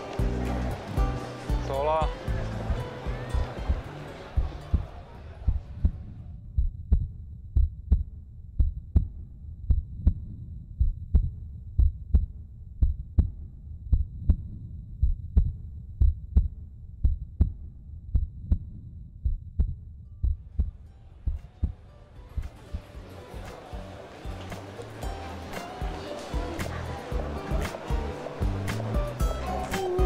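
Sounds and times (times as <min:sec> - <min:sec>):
heartbeat thumps: 0:02.2 - 0:23.1.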